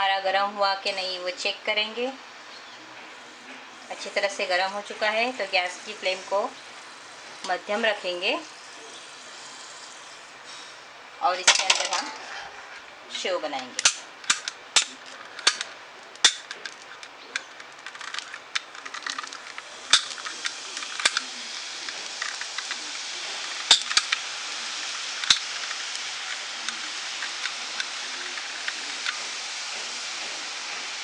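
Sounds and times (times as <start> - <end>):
dough sizzling in hot oil: 3.1 - 11.4, 19.3 - 31.0
oil popping and crackling: 5.4 - 10.4, 13.8 - 31.0.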